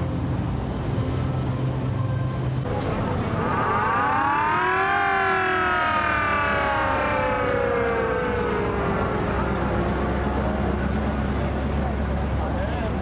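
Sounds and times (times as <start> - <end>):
siren rising and falling: 2.6 - 11.1.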